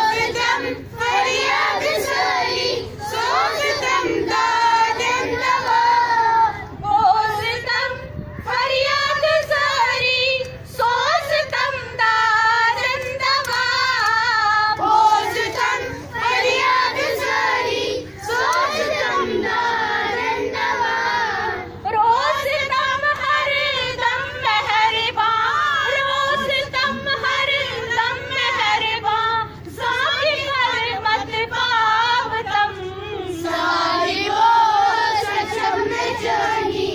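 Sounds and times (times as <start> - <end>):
women and children singing in unison: 0.0 - 36.9
woman singing into a microphone: 6.8 - 15.8, 21.7 - 33.7.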